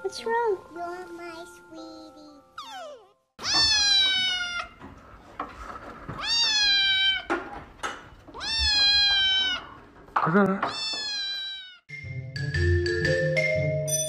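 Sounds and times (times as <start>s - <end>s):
kitten meowing: 2.6s - 4.8s, 6.2s - 7.3s, 8.3s - 9.8s, 10.7s - 11.8s.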